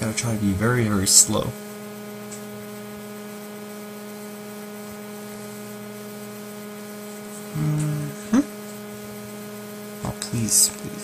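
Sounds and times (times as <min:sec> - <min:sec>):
electrical mains hum: 0:00.0 - 0:11.0
short low tone: 0:07.5 - 0:08.5.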